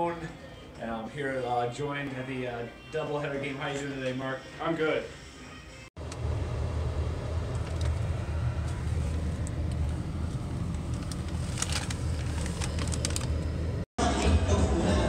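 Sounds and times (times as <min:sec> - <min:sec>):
vehicle rumble in motion: 0:06.0 - 0:13.9.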